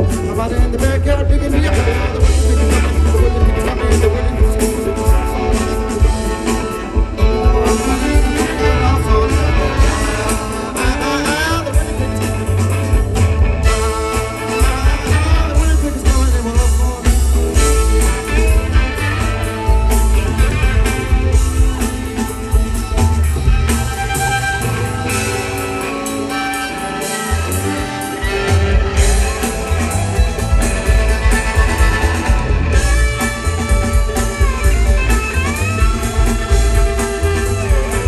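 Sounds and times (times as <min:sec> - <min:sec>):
person singing: 0:00.0 - 0:12.7
drums: 0:00.0 - 0:38.0
electric guitar: 0:00.0 - 0:38.0
upright bass: 0:00.0 - 0:38.0.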